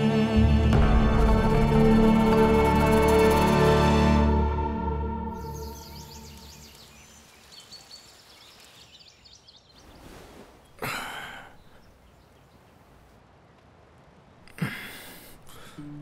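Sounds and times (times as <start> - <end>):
music: 0.0 - 6.6, 15.7 - 16.0
small birds chirping: 5.4 - 13.2.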